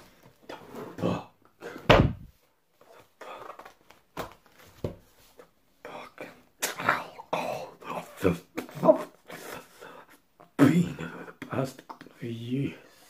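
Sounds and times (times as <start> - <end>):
heavy book thud: 1.8 - 2.4.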